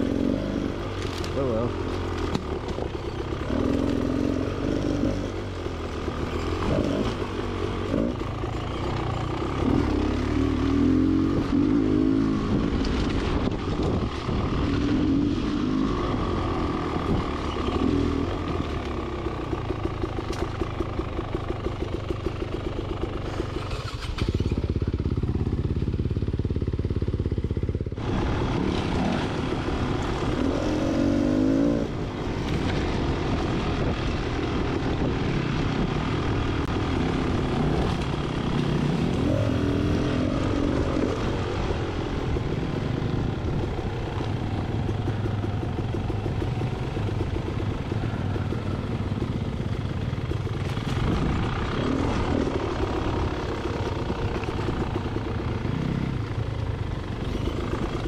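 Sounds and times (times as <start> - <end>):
two-stroke motorcycle engine revving: 0.0 - 58.0.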